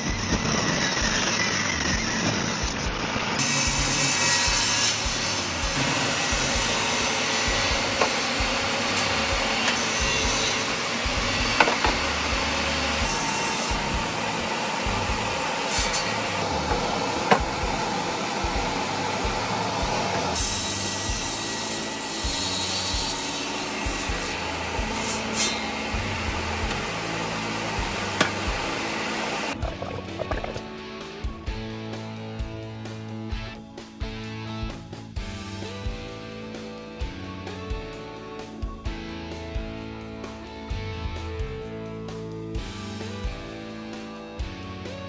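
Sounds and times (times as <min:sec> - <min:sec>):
table saw ripping boards: 0:00.0 - 0:29.6.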